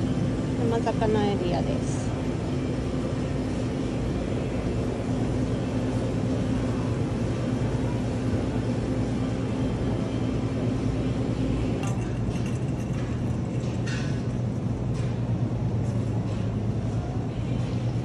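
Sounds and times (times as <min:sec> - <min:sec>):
refrigeration hum: 0:00.0 - 0:18.0
faint clinks: 0:11.8 - 0:14.5.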